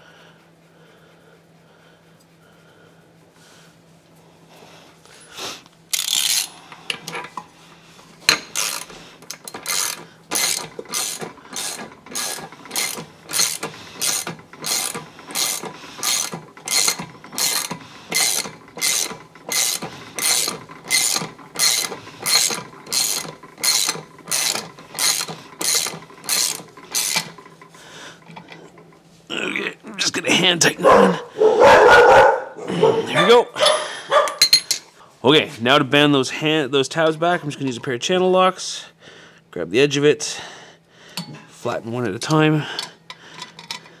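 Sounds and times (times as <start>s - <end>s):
ratchet wrench ratcheting: 5.9s - 7.4s, 8.3s - 27.4s.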